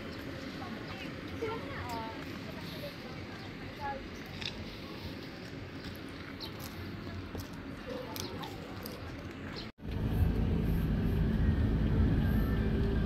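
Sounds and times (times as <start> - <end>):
car engine and road noise: 9.3 - 13.0.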